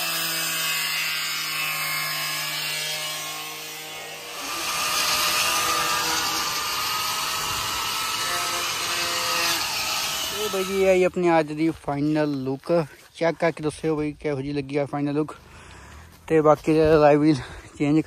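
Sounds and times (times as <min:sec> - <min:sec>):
angle grinder grinding metal: 0:00.0 - 0:13.0.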